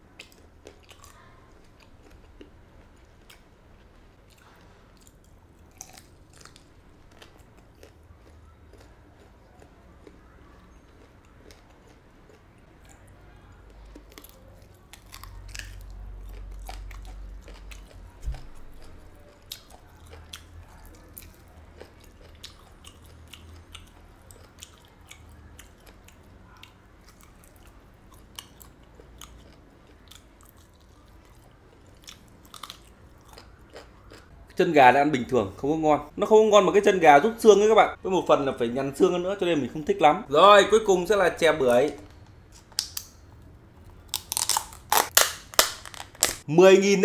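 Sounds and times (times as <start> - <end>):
person chewing crunchy food: 0.1 - 34.6, 43.8 - 46.5.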